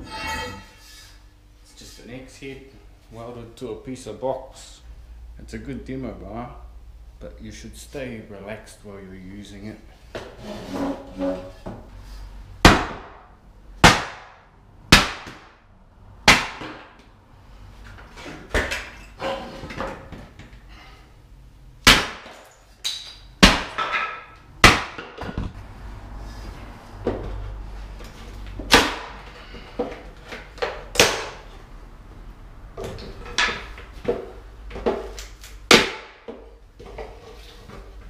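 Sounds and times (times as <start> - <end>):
loud metal bar knocks on wood: 12.6 - 15.5, 23.4 - 25.5, 35.7 - 36.4
wood splitting: 12.6 - 15.6, 16.3 - 16.9, 21.8 - 25.5, 28.6 - 29.2, 34.9 - 36.3.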